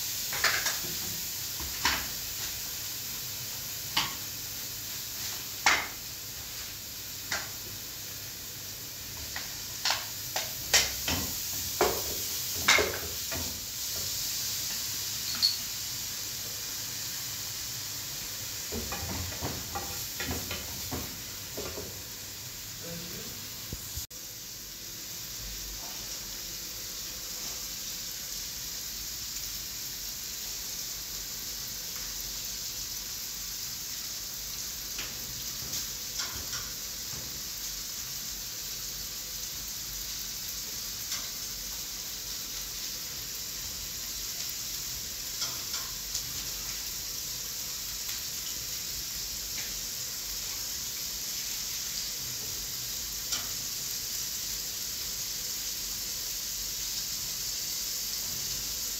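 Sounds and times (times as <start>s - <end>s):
rice grains clicking on pan: 0.3s - 1.0s, 7.2s - 7.6s, 9.2s - 13.4s, 45.3s - 46.8s
tap water running: 9.1s - 15.6s, 18.7s - 22.2s.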